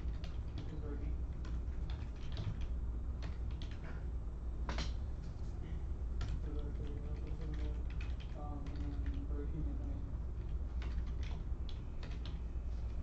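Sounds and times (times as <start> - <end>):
typing on computer keyboard: 0.0 - 4.0, 6.2 - 9.5, 10.4 - 13.0
steady low hum: 0.0 - 13.0.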